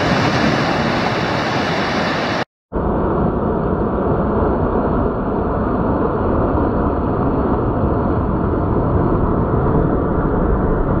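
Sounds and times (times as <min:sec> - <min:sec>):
ocean surf breaking: 0:00.0 - 0:02.5.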